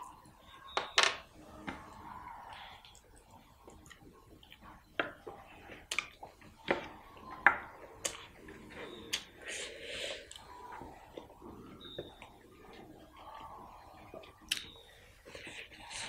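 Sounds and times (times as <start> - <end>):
person chewing with wet clicks: 1.6 - 16.0
lip smacks: 2.5 - 6.8, 14.0 - 14.8.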